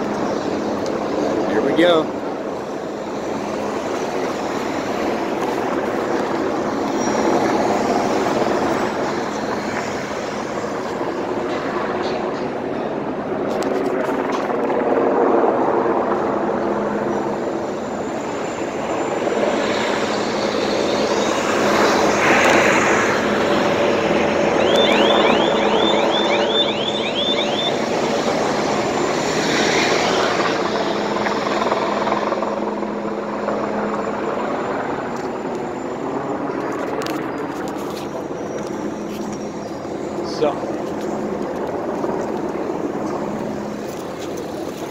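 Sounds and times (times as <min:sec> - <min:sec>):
helicopter engine drone: 0:00.0 - 0:44.9
street traffic: 0:00.0 - 0:44.9
quick rising high chirps: 0:24.5 - 0:27.9.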